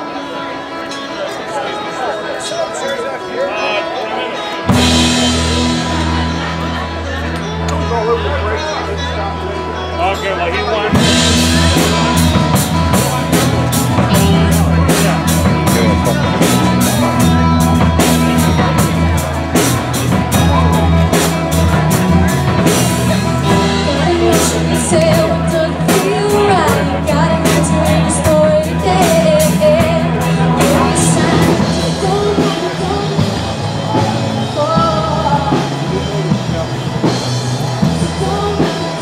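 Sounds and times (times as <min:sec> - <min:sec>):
drum kit: 0:04.6 - 0:07.9, 0:10.9 - 0:39.0
person singing: 0:23.3 - 0:37.2, 0:37.8 - 0:39.0.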